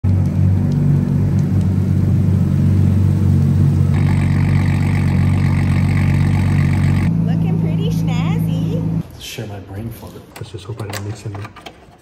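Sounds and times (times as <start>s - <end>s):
car engine idling: 0.1s - 9.0s.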